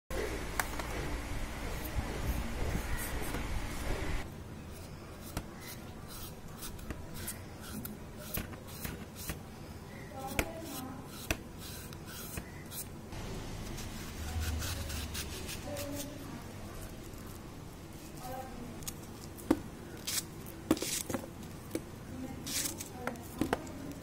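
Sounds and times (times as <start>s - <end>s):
knife scraping plantain peel: 4.7s - 17.4s, 18.8s - 24.0s.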